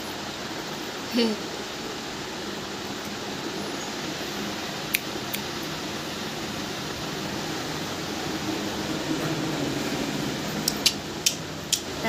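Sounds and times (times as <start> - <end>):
room noise hiss: 0.0 - 12.0
sharp clicks: 10.7 - 11.9.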